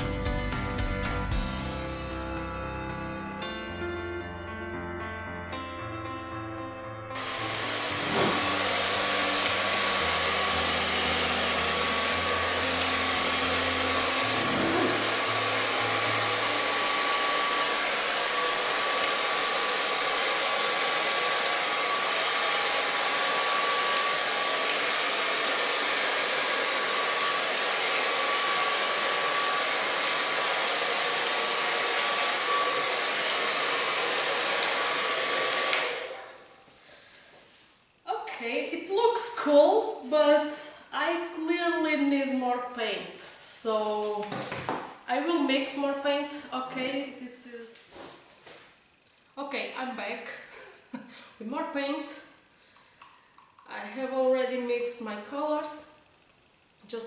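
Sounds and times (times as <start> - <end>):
hair dryer running: 7.2 - 36.5.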